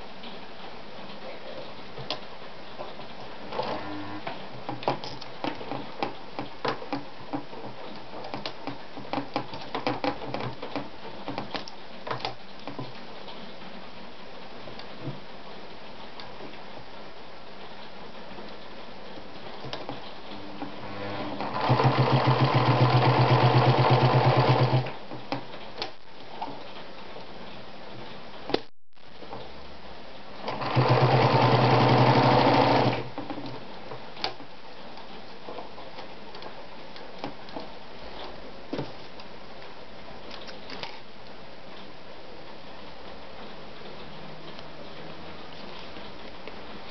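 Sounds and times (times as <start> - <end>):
sewing machine stitching: 3.5 - 4.3, 20.4 - 25.0, 30.4 - 33.4.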